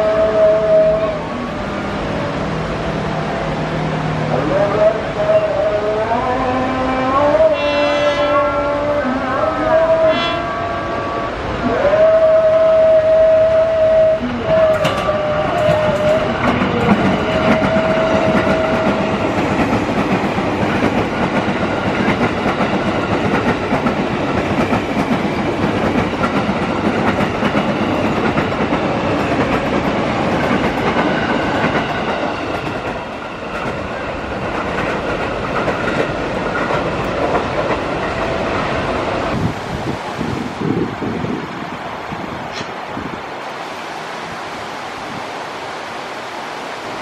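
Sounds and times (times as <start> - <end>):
train horn: 0.0 - 2.0, 4.3 - 19.3
train wheels clattering over rails: 14.5 - 39.6.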